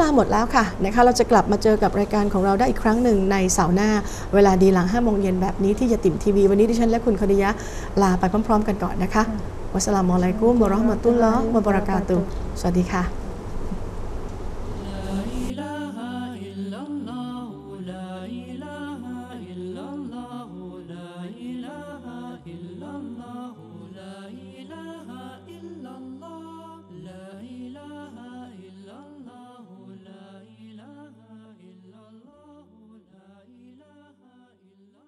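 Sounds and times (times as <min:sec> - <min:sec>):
devotional vocal chant: 0:00.0 - 0:13.2, 0:14.6 - 0:35.0
low drone: 0:00.0 - 0:15.6.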